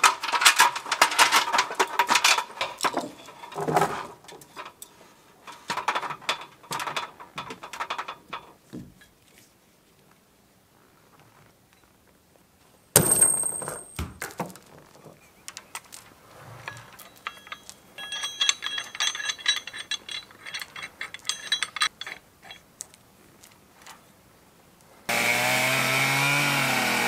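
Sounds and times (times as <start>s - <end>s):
metallic clank of hook: 13.0s - 13.9s
chain clinking and rattling: 13.0s - 14.0s, 15.7s - 24.0s.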